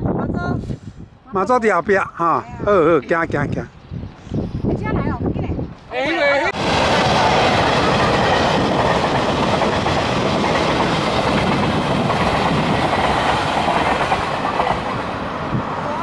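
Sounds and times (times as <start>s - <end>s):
train wheels clattering on rails: 6.6s - 15.2s.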